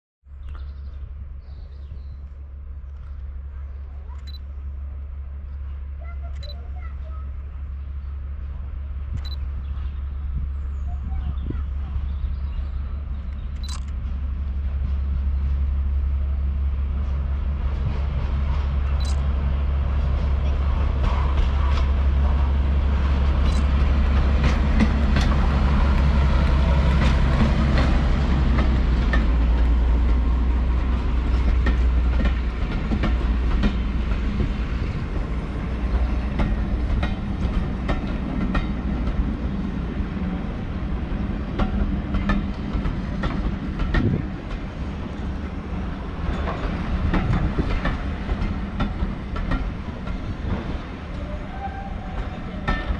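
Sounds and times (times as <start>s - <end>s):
locomotive engine droning: 11.7s - 52.9s
train wheels clicking over rail joints: 20.9s - 39.8s, 41.2s - 51.2s.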